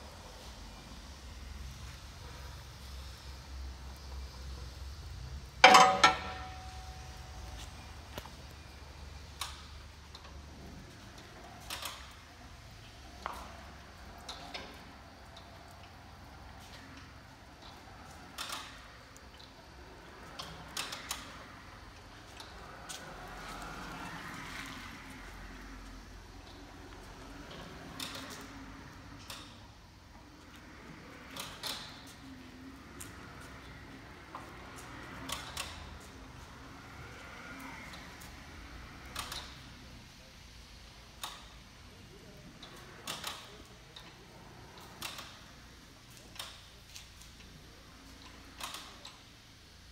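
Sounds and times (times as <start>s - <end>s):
pallet stacker clicks and clunks: 5.6s - 8.2s, 44.8s - 45.5s.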